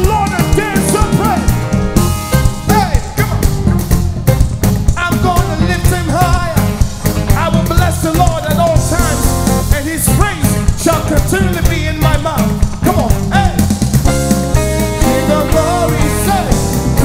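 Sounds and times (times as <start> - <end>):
man singing lead: 0.0 - 1.8, 2.5 - 3.6, 4.9 - 17.0
band with drums and bass: 0.0 - 17.0
backing vocalists singing: 14.7 - 17.0.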